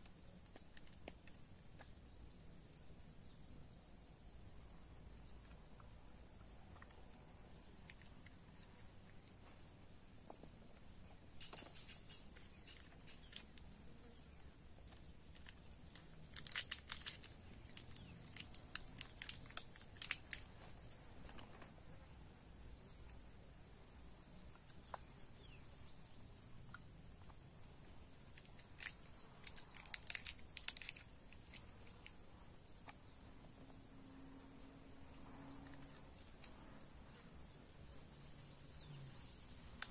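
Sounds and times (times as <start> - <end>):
plastic bag crinkling: 15.4 - 20.5, 28.8 - 31.6.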